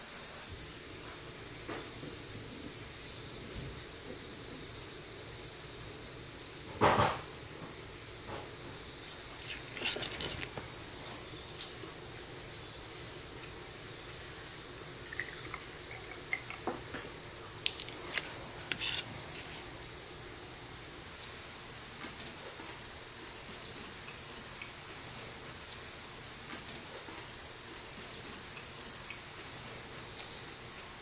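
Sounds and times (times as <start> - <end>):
faint steady hiss: 0.0 - 31.0
liquid glugging from bottle: 15.0 - 16.9.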